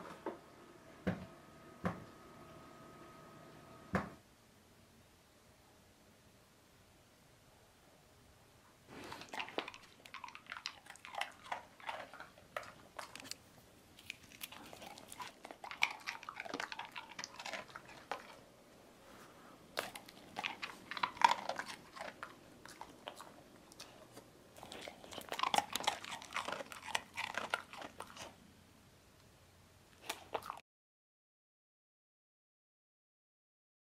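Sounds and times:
dog crunching a hard biscuit: 0:09.0 - 0:18.4, 0:19.7 - 0:28.4, 0:30.0 - 0:30.6.

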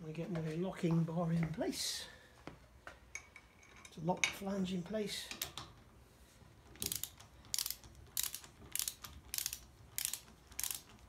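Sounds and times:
ratchet wrench clicking: 0:06.8 - 0:11.0.

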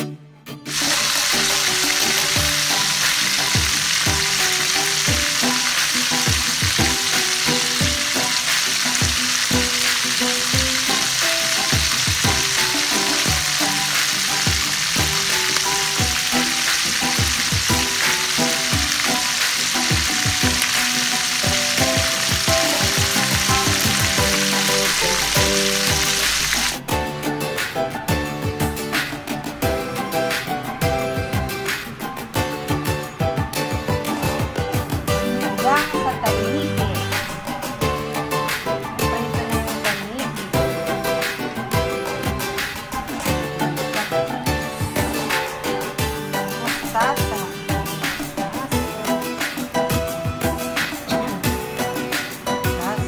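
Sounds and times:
background music: 0:00.0 - 0:53.0
fish sizzling in hot oil: 0:00.7 - 0:26.8.

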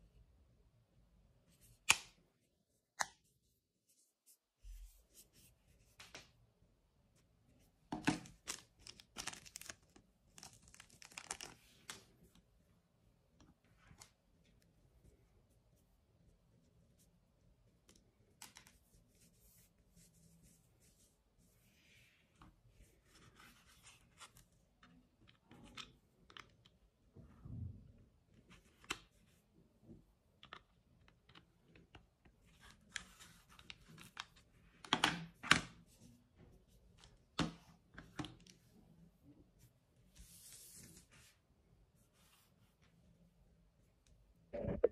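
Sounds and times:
plastic wrapping crinkling: 0:08.2 - 0:11.6.

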